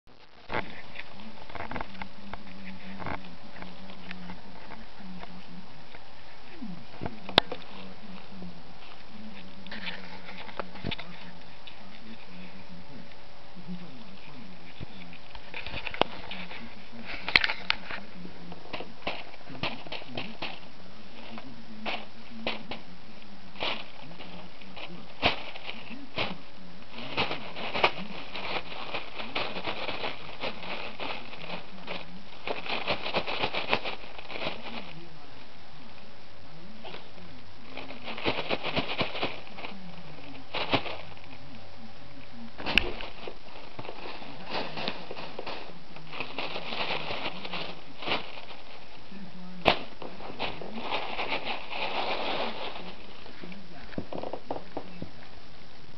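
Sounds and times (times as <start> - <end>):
tissue paper crinkling: 18.7 - 22.8, 23.6 - 35.1, 36.8 - 41.4, 42.6 - 53.6.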